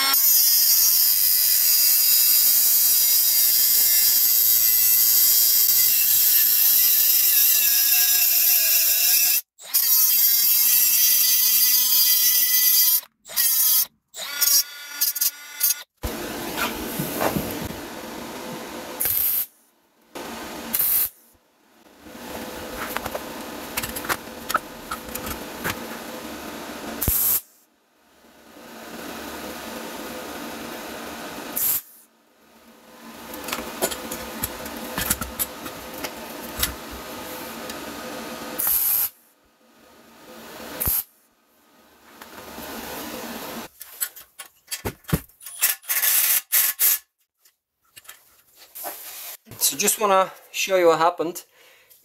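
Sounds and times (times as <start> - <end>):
welder arc crackling and hissing: 16.0 - 19.6, 20.2 - 21.4, 22.3 - 27.6, 29.1 - 32.1, 40.7 - 41.1.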